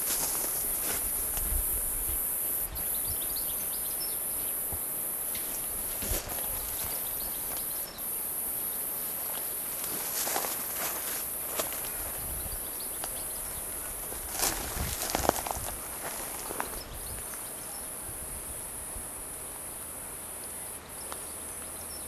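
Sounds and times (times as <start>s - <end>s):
footsteps on dry grass: 0.0s - 2.1s, 5.4s - 7.9s, 9.2s - 12.4s, 13.0s - 16.9s
steady high hiss: 0.0s - 22.0s.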